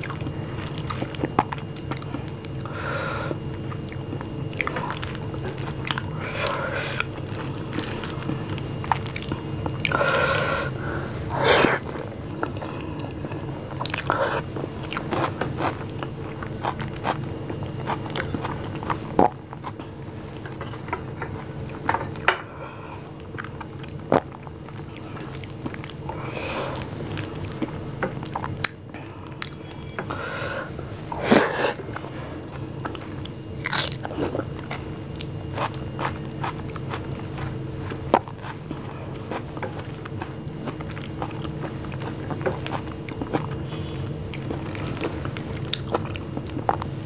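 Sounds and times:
chewing: 0.0 - 47.0.

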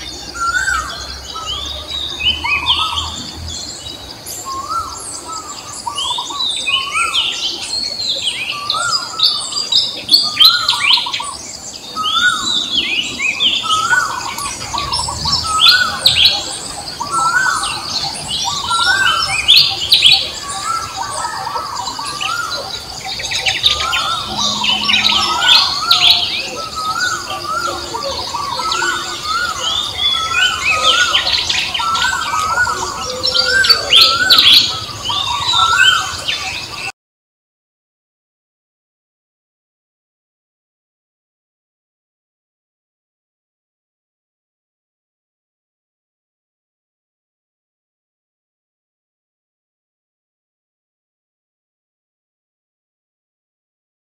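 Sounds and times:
birds chirping: 0.0 - 36.9
high-pitched drone: 20.3 - 36.2.

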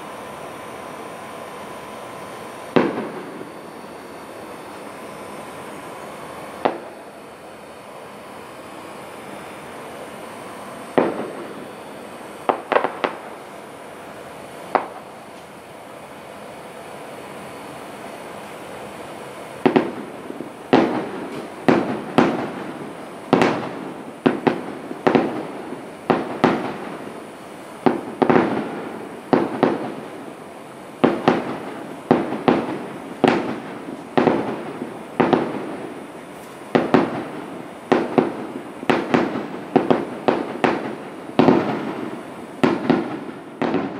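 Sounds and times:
firework shells bursting: 2.7 - 5.8, 6.6 - 7.3, 10.9 - 15.5, 19.6 - 30.4, 31.0 - 43.9.

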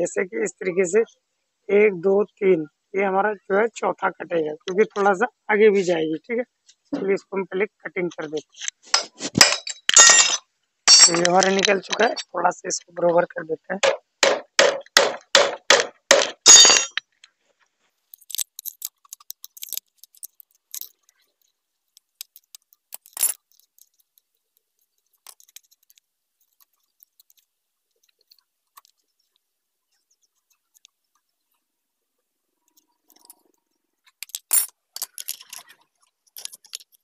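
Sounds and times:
metal strokes on chain link: 8.9 - 11.2, 16.4 - 17.0
chain clinking: 9.4 - 12.2, 16.5 - 17.0, 18.1 - 21.2, 22.2 - 24.0, 34.2 - 37.0.

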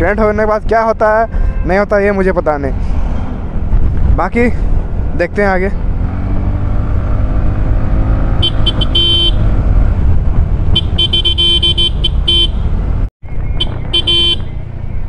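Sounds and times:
scooter road rumble and wind: 0.0 - 15.0
vehicle horn tooting: 1.3 - 1.9, 8.4 - 9.5, 10.7 - 12.6, 13.6 - 14.5.

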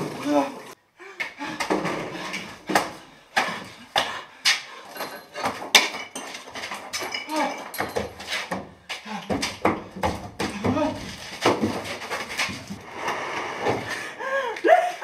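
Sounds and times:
thumps against wall and floor: 5.0 - 12.8.

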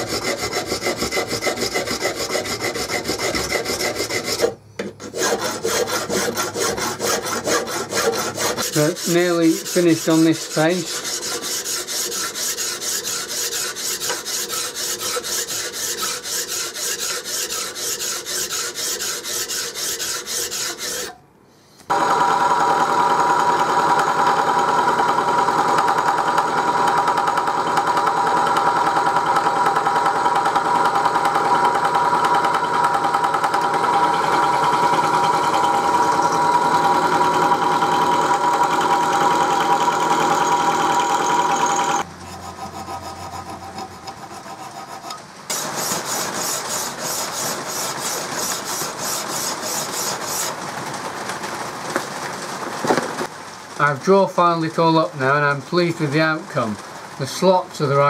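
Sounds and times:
hand file rasping on metal: 0.0 - 21.2, 39.0 - 50.6
machine tool spindle humming: 21.9 - 50.5.

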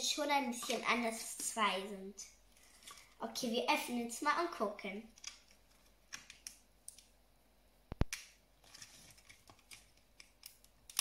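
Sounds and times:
plastic packaging clicks and crinkles: 8.0 - 11.0.

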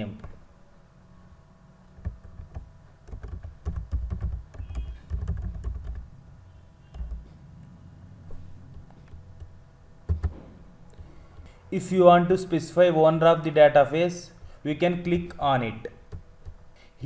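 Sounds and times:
typing on computer keyboard: 2.0 - 6.1, 6.9 - 7.3, 9.1 - 10.4.

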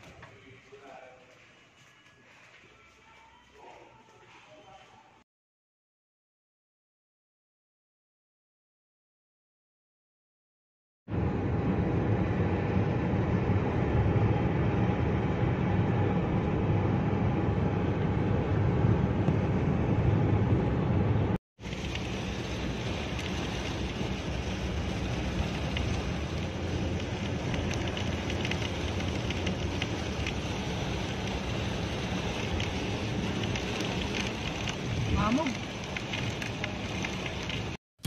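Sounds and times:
car road and engine noise: 11.1 - 37.8
raindrops ticking on car: 21.6 - 37.8.

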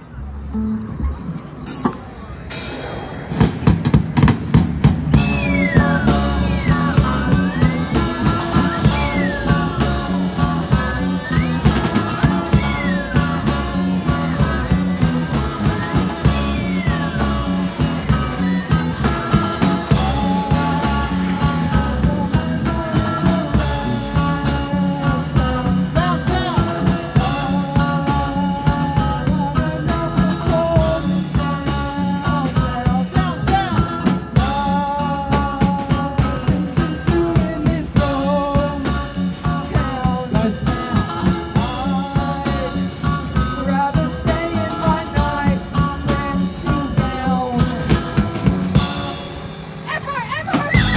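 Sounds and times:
live rock band playing: 0.0 - 50.9
sliding lead guitar line: 0.0 - 50.9
person singing long notes: 19.9 - 48.0.

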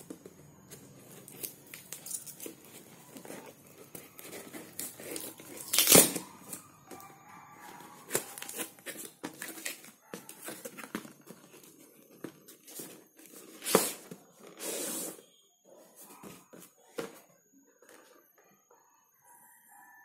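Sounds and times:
packing tape ripping: 4.3 - 6.6
product sliding out of cardboard: 13.5 - 15.3.

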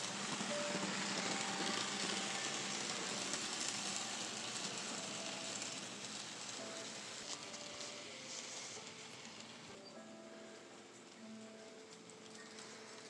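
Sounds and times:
model train wheels rattling: 0.0 - 9.8.

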